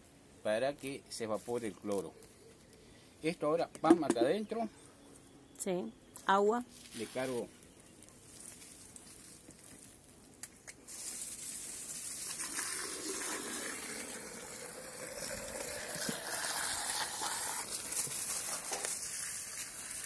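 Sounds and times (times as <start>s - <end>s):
hose water filling plastic container: 10.9s - 20.0s.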